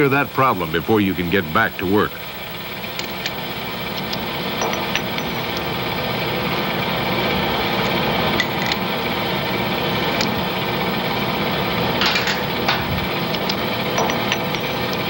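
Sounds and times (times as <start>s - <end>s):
metal lathe humming: 0.0s - 15.0s
metallic clicks and clinks: 4.0s - 5.7s, 11.9s - 15.0s.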